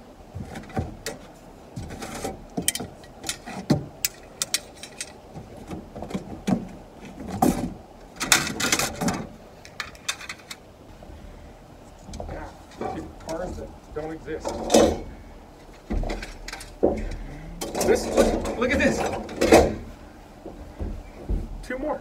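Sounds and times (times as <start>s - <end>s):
metal parts clinking and clattering: 2.0s - 5.2s, 8.2s - 10.6s.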